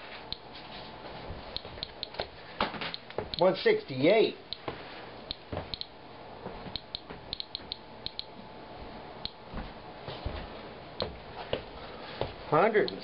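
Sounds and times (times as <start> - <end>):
geiger counter clicking: 1.6 - 2.3, 5.3 - 5.9, 6.8 - 8.3.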